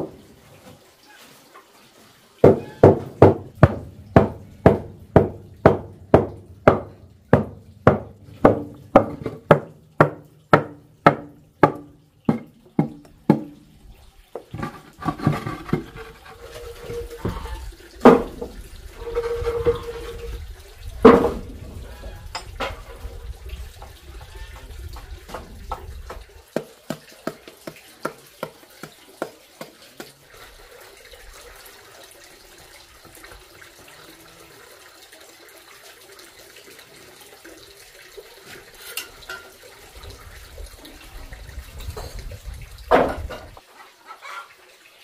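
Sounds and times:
irregular scraping: 0:14.5 - 0:17.7, 0:19.0 - 0:20.4.

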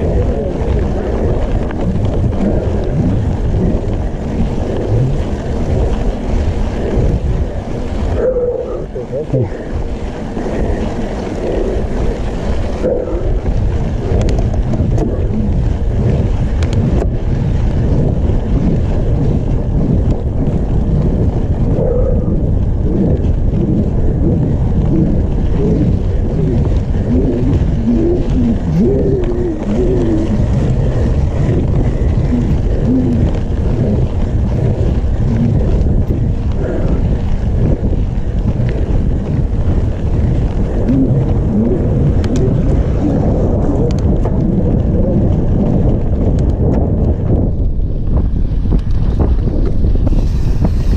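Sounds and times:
tyres rumbling over gravel: 0:00.0 - 0:50.9
wind buffeting microphone: 0:00.0 - 0:50.9.

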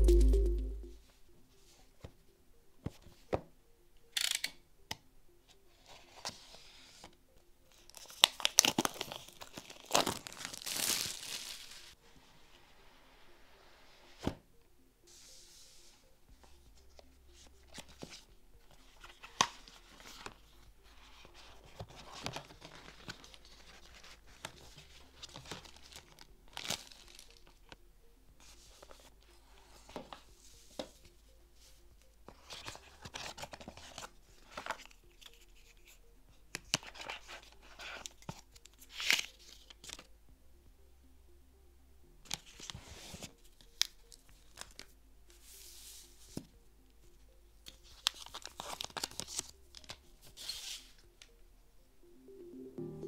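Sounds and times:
paper packaging rustling: 0:07.9 - 0:12.0, 0:21.3 - 0:27.5, 0:47.8 - 0:51.0
plastic sheet crinkling: 0:08.3 - 0:12.0.

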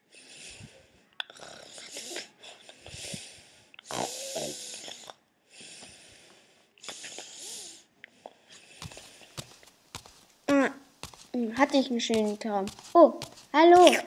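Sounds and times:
person snoring: 0:03.0 - 0:05.2.

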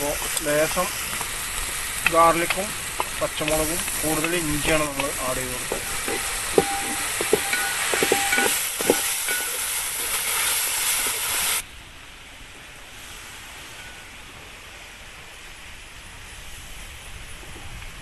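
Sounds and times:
vegetables sizzling in oil: 0:00.0 - 0:11.6
outdoor background noise: 0:00.0 - 0:18.0.

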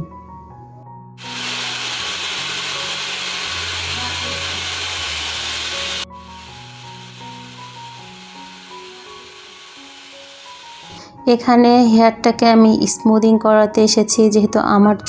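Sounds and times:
soft background music: 0:00.0 - 0:01.2, 0:02.0 - 0:15.0
hair dryer blowing: 0:01.2 - 0:11.2.

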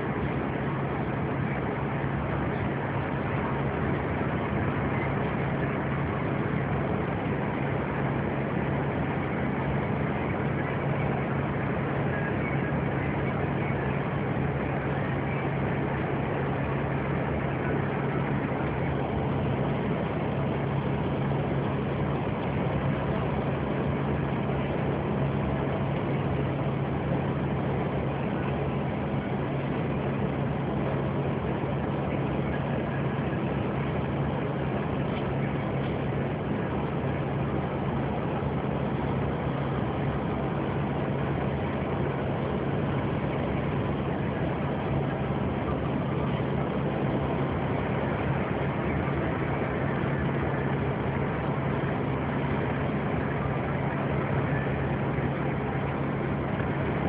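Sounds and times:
road noise: 0:00.0 - 0:57.0
vehicle engine drone: 0:00.0 - 0:57.0.

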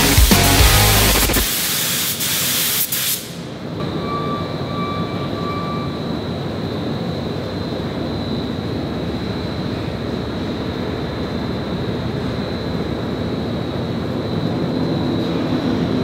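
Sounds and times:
spray gun hissing: 0:00.0 - 0:03.5
background noise with high whine: 0:00.0 - 0:16.0.

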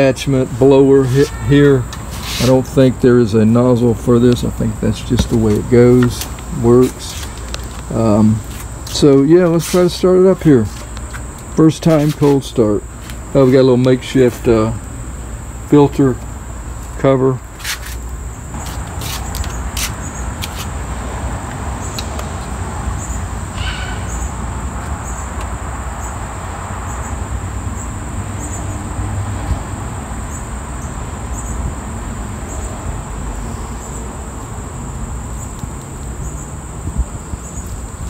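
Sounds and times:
high insect drone: 0:00.0 - 0:38.0
low wind rumble: 0:14.4 - 0:38.0
faint clicks of engine controls: 0:21.4 - 0:22.5.

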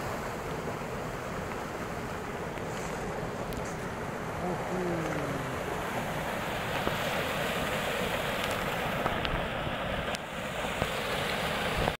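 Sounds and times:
small waterfall pouring into pool: 0:06.6 - 0:12.0.

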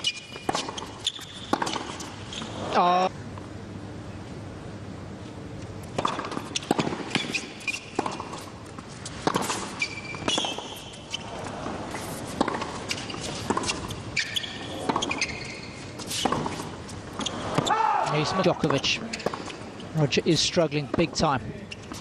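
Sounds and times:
racquets striking tennis ball: 0:00.0 - 0:02.3, 0:05.8 - 0:19.8
shoes squeaking on court: 0:00.0 - 0:02.8, 0:05.6 - 0:22.0.

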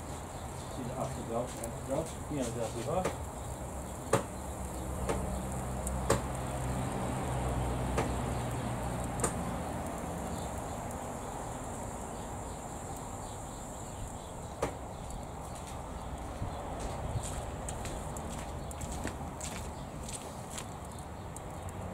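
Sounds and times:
sharp ticks: 0:03.0 - 0:11.8.

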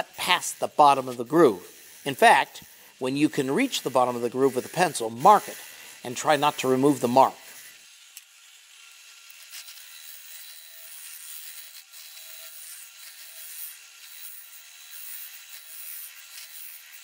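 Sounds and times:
lathe chisel scraping wood: 0:00.0 - 0:07.8, 0:09.3 - 0:17.0.

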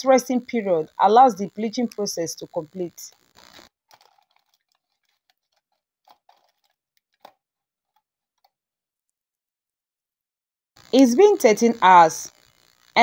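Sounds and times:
aluminium foil crinkling: 0:03.1 - 0:08.5.

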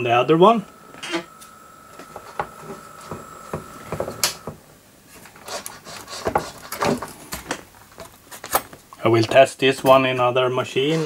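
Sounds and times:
high-pitched whine: 0:00.0 - 0:05.0.

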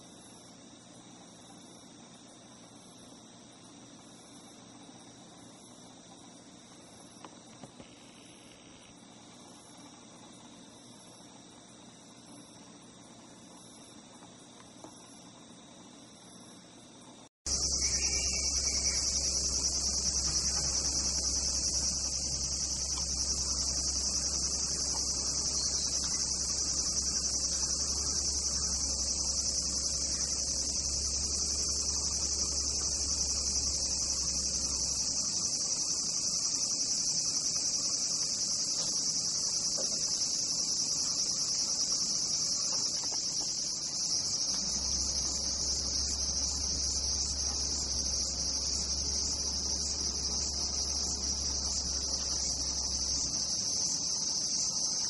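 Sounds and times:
insects singing: 0:00.0 - 0:55.0
low hum: 0:17.5 - 0:55.0.

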